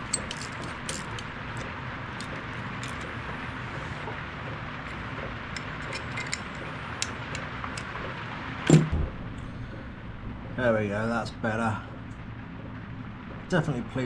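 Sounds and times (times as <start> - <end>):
low background hum: 0.0 - 14.0
ratchet wrench clicks: 5.6 - 6.4
loud knock: 8.7 - 9.4.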